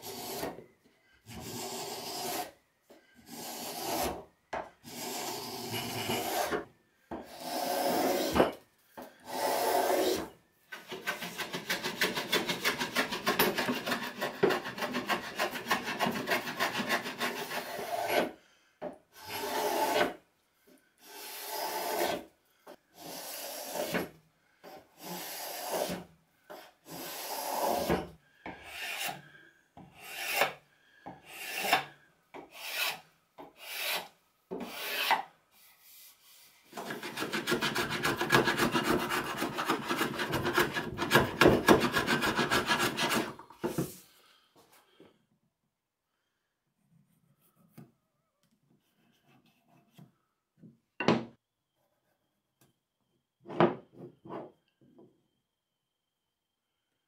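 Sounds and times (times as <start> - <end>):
hand plane scraping rasp: 0.0 - 0.6, 1.3 - 2.6, 3.2 - 18.3, 19.2 - 20.2, 21.0 - 22.3, 23.0 - 29.3, 30.0 - 30.6, 31.2 - 44.0.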